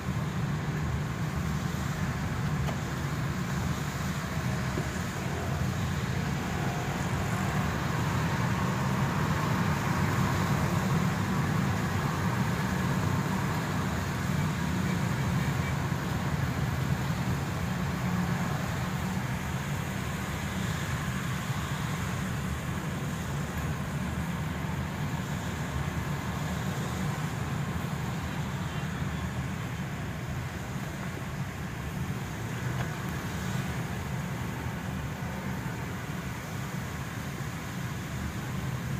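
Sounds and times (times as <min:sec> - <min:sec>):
car engine and road drone: 0:00.0 - 0:38.9
tyres hissing on wet road: 0:00.0 - 0:38.9.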